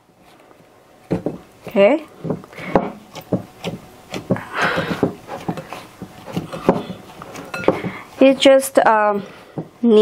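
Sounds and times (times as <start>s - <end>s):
dough rubbing: 0.0s - 10.0s
dough kneading thumps: 1.0s - 10.0s.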